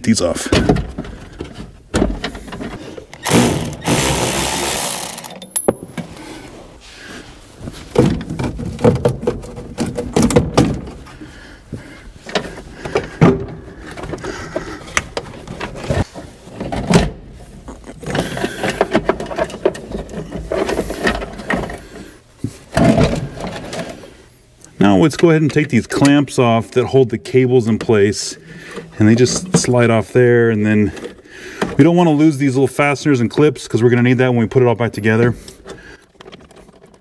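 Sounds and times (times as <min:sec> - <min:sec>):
knocks clicks and scraping: 0:00.5 - 0:06.2, 0:07.7 - 0:11.1, 0:12.2 - 0:22.1, 0:35.5 - 0:37.0.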